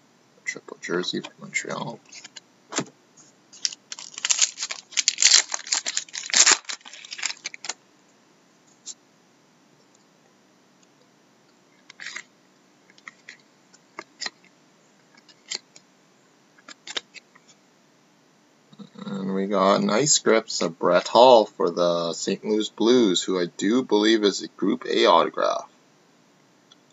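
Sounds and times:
cards flipped through by hand: 3.5 - 7.8, 16.6 - 17.2
wrapper tearing and crinkling: 3.6 - 7.8, 11.9 - 12.3, 15.3 - 15.6.

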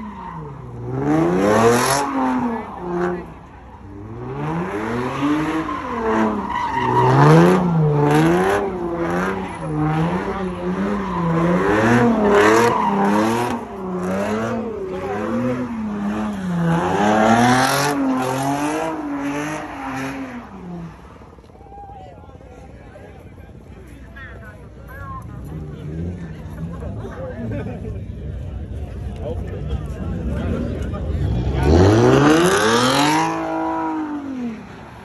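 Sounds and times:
car engine revving: 0.0 - 21.4, 29.8 - 35.0
tires squealing: 0.0 - 22.5, 29.8 - 35.0.

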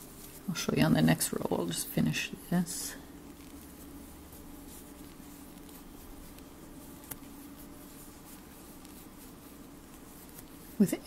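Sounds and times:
low room hum: 0.0 - 11.0
yarn rustling with crochet hook: 0.0 - 11.0.

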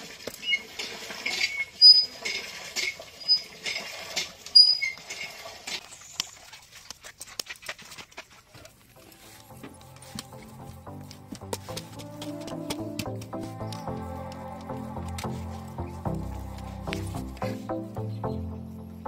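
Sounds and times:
short high squeaks: 3.2 - 3.5, 4.6 - 5.0
wet clay pats: 6.2 - 18.3.

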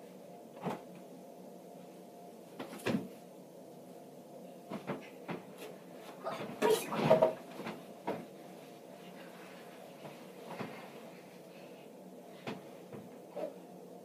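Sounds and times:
person landing on mattress: 2.6 - 3.2.

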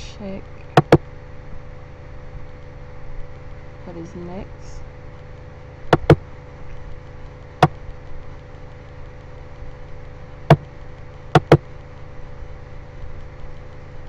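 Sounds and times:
steady low hum: 0.0 - 14.0
computer mouse clicking: 6.0 - 6.2, 11.4 - 11.6.

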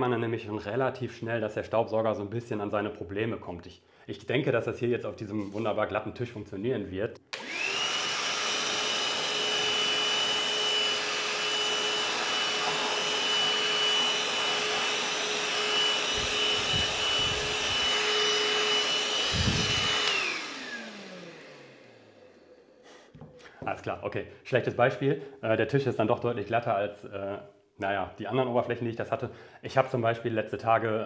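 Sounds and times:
handheld vacuum running: 7.3 - 23.3.

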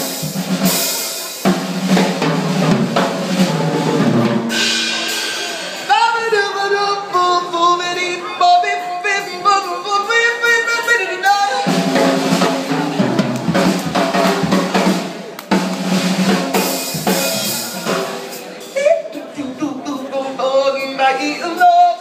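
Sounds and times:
drum kit hits: 0.0 - 6.0, 11.6 - 18.6
cymbals washing: 0.0 - 6.1
live band playing: 0.0 - 22.0.

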